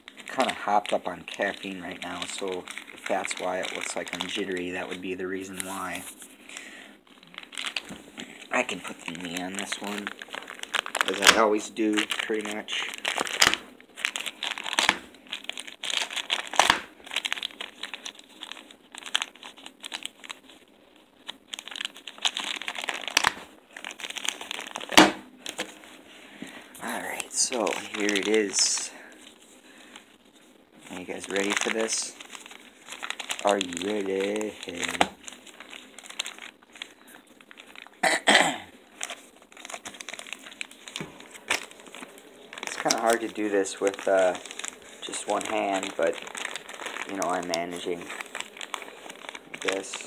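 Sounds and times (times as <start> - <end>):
envelope crinkling: 0.0 - 50.0
paper ripping: 0.1 - 6.3, 7.1 - 20.6, 26.8 - 28.9, 30.8 - 38.0, 38.9 - 50.0.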